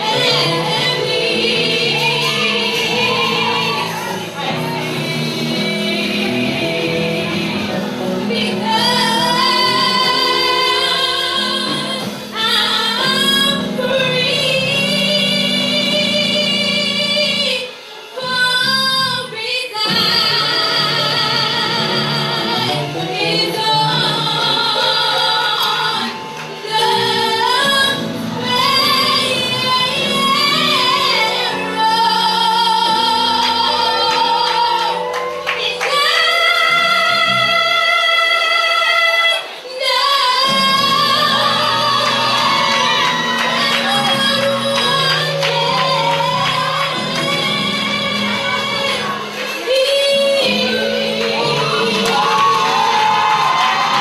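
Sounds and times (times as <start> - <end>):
backing music: 0.0 - 54.0
woman singing gospel: 0.0 - 54.0.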